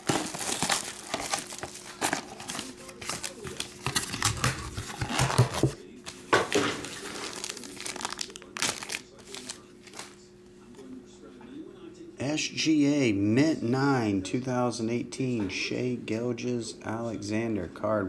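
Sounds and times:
plastic wrap crinkling and tearing: 0:00.0 - 0:05.8, 0:06.5 - 0:10.2
plastic bag being handled: 0:00.0 - 0:10.2.

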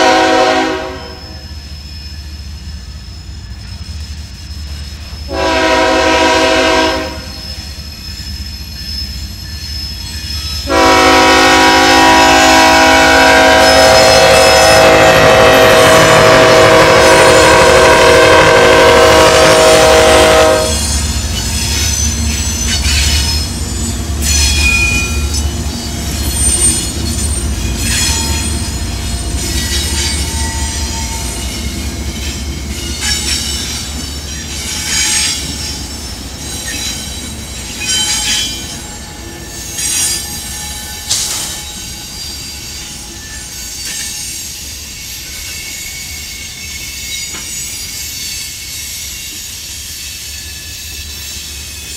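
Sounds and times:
train horn chord: 0:00.0 - 0:01.3, 0:05.3 - 0:07.4, 0:10.7 - 0:20.8
diesel locomotives rumbling: 0:00.0 - 0:51.9
train wheels squealing: 0:00.0 - 0:51.9.

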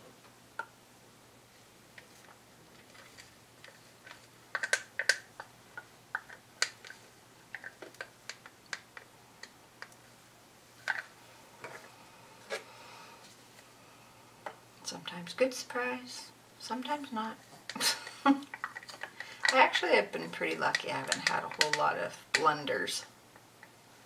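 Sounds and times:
plastic cups and sticks clicking: 0:02.9 - 0:10.0, 0:17.7 - 0:19.7, 0:20.5 - 0:22.5.

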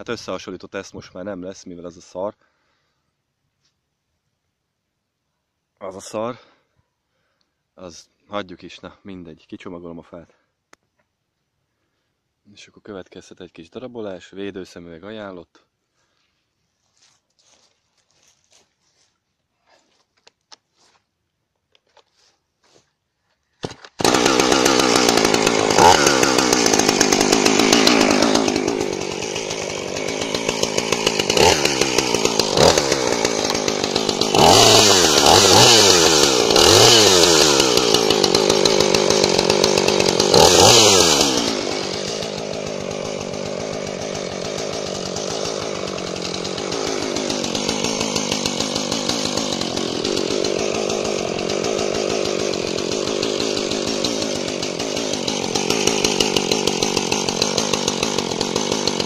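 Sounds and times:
chainsaw cutting log: 0:23.6 - 0:59.0
chainsaw engine revving and idling: 0:23.7 - 0:59.0.

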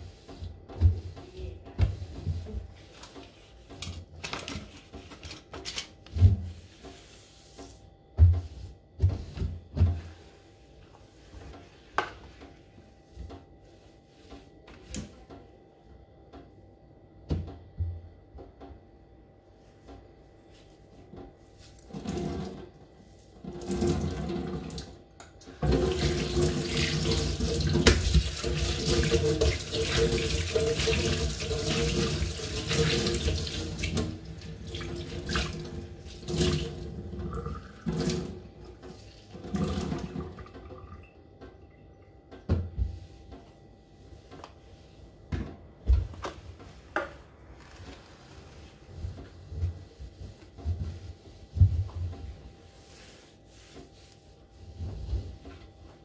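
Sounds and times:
cloth wiping steel: 0:04.7 - 0:14.5, 0:46.2 - 0:55.7.

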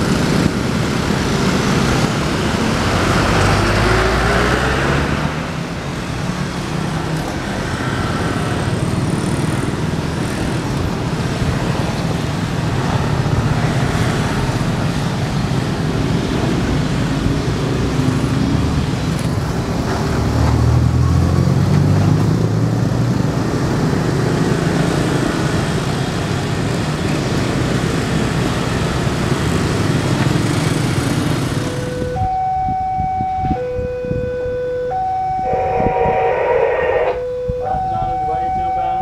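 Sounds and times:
motorbike and car engines passing: 0:00.0 - 0:32.4
two-tone warning siren: 0:31.6 - 0:39.0.

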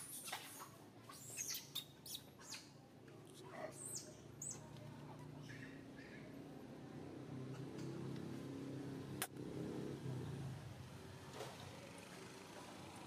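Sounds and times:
high chirping calls: 0:00.1 - 0:02.7.

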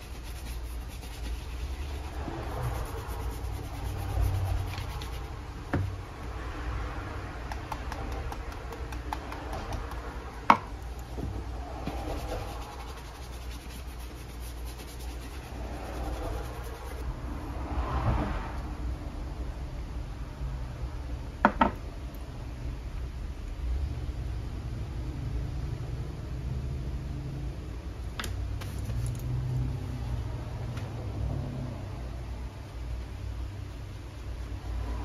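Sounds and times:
knock: 0:21.4 - 0:21.8.

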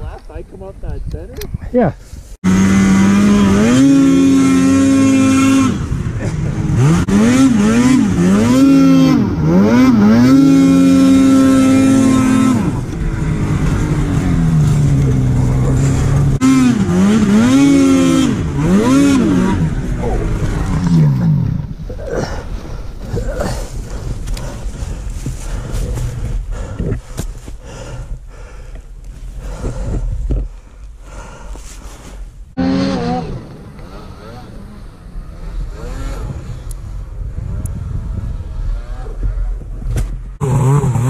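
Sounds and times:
snowmobile engine revving: 0:02.4 - 0:26.8, 0:32.5 - 0:39.8, 0:40.4 - 0:41.0.

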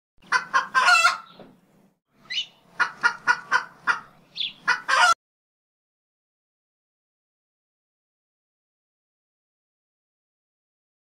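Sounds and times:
chicken squawking and clucking: 0:00.2 - 0:01.4, 0:02.2 - 0:05.2.

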